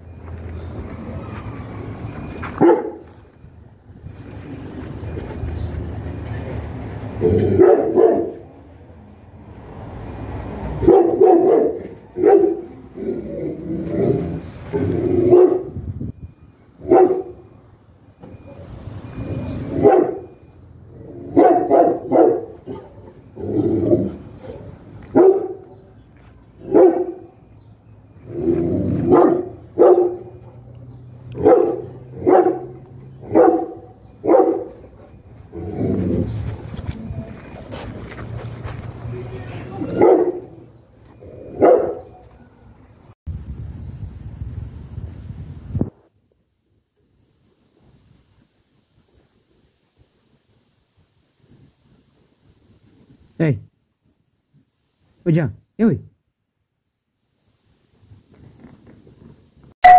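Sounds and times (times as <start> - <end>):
dog barking: 2.6 - 3.0, 7.6 - 8.5, 10.8 - 12.8, 15.2 - 15.8, 16.8 - 17.5, 19.7 - 20.4, 21.3 - 23.0, 24.5 - 25.8, 26.6 - 27.4, 29.0 - 30.6, 31.4 - 34.9, 39.8 - 40.7, 41.5 - 42.2.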